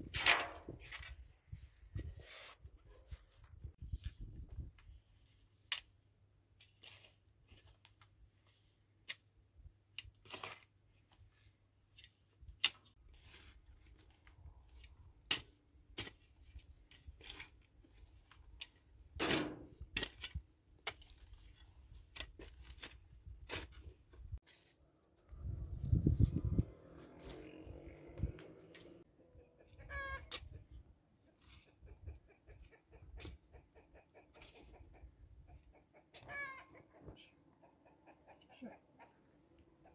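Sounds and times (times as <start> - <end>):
shovel digging soil: 6.6 - 7.9, 10.0 - 11.2, 11.9 - 24.8.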